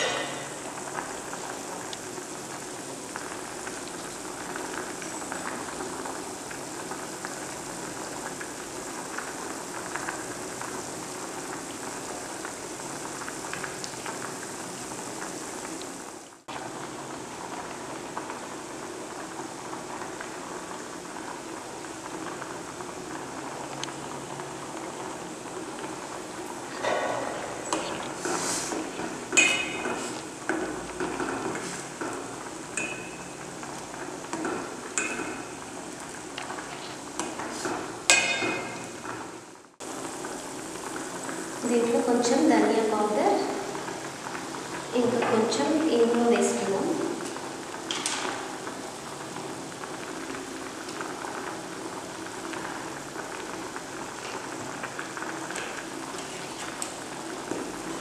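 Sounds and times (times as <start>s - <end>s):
broth boiling in pot: 0.0s - 58.0s
ladle knocking steel pot: 29.3s - 30.1s, 32.8s - 33.3s, 38.1s - 38.9s.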